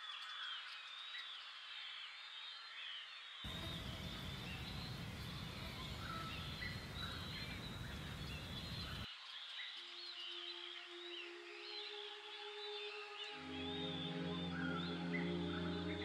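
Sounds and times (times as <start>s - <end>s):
insects: 3.5s - 9.1s
low sustained musical tone: 3.5s - 9.1s, 10.1s - 16.0s
steady rushing noise: 3.5s - 9.1s
small birds chirping: 3.5s - 9.6s.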